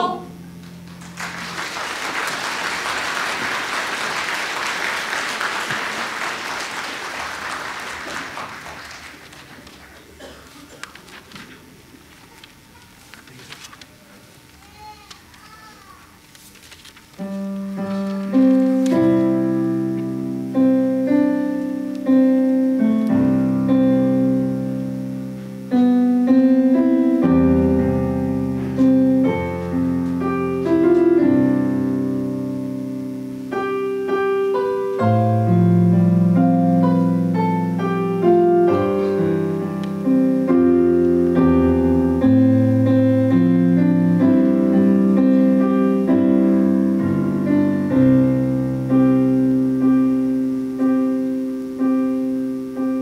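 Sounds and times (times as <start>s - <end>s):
digital piano playing chords: 17.2s - 53.0s.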